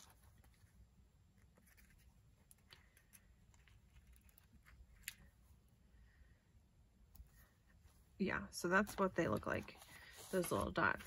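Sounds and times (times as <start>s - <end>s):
paper sheets rustling: 8.8s - 11.0s.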